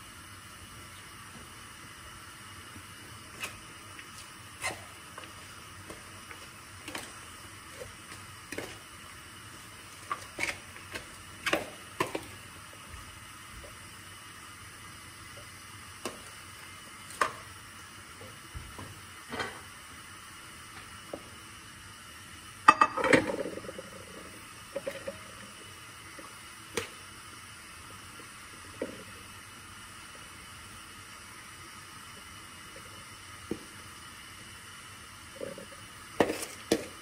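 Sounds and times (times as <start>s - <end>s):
faint hiss: 0.0s - 37.0s.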